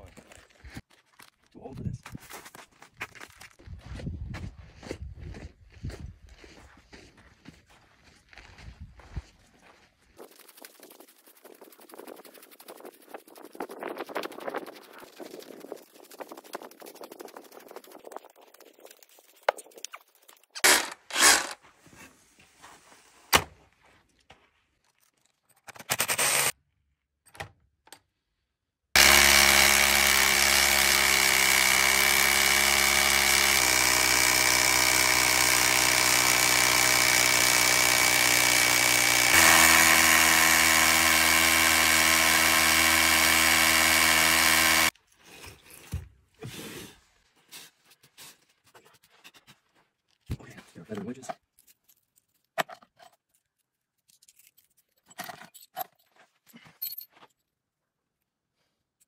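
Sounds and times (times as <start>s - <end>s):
cordless drill boring into stone: 20.6s - 21.6s, 26.0s - 26.5s, 29.0s - 44.9s.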